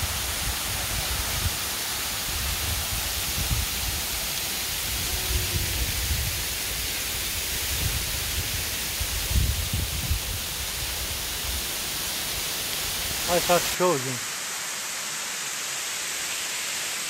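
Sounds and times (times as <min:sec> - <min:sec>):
waterfall rushing: 0:00.0 - 0:17.0
wind buffeting microphone: 0:07.7 - 0:10.5.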